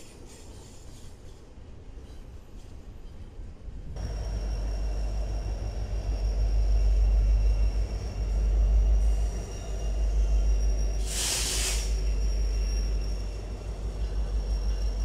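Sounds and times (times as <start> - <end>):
diesel locomotive rumbling: 3.2 - 15.0
thin high whine: 4.0 - 15.0.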